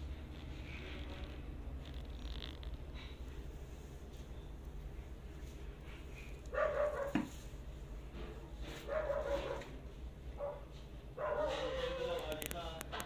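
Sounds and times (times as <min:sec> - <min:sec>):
dog barking: 0:06.5 - 0:07.3, 0:08.8 - 0:09.8, 0:10.4 - 0:12.0.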